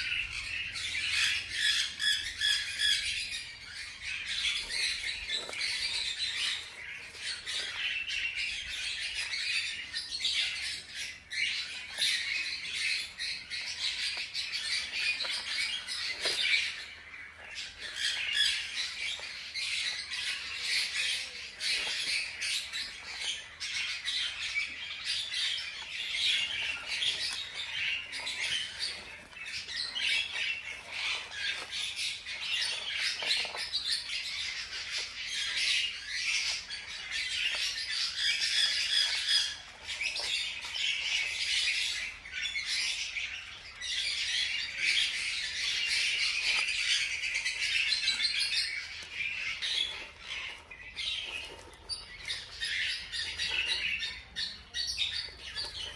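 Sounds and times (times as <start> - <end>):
hamster pups squeaking: 0.0 - 55.9.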